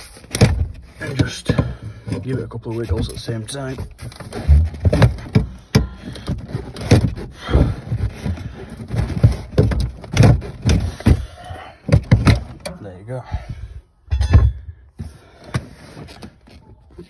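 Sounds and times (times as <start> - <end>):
metallic clunks and knocks: 0.3 - 12.8, 14.1 - 14.9.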